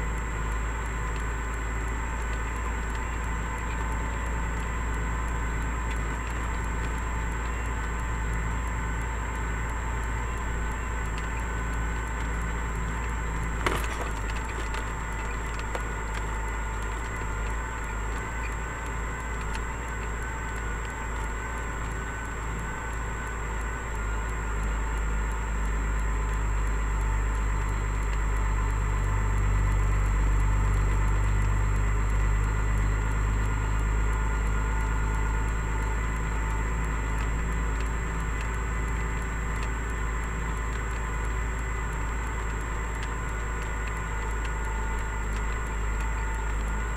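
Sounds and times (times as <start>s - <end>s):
truck diesel engine rumbling: 8.4s - 19.8s.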